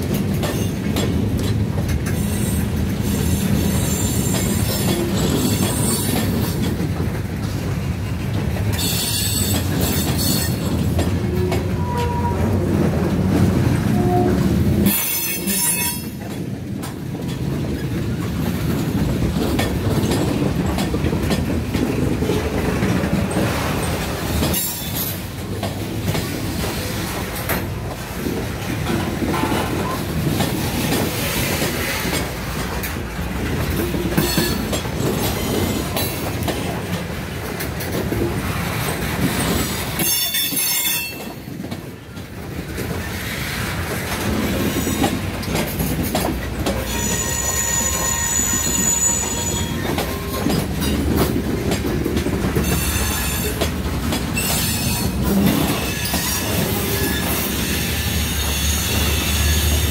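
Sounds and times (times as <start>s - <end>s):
train wheels rolling on rails: 0.0s - 59.9s
high-pitched wheel squeals: 46.8s - 50.4s.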